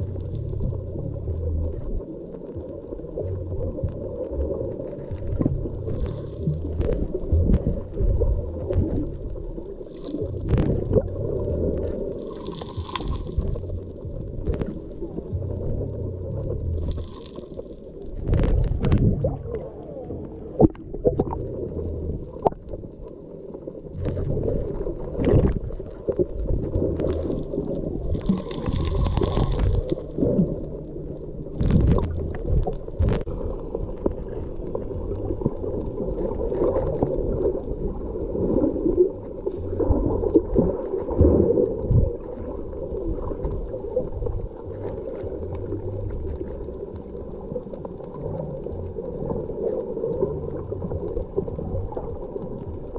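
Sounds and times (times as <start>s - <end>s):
underwater gurgling and sloshing: 0.0s - 52.9s.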